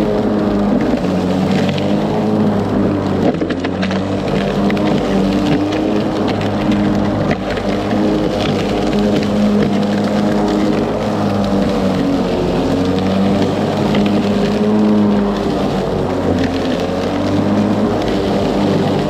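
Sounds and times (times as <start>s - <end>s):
electric lawn mower running: 0.0s - 19.0s.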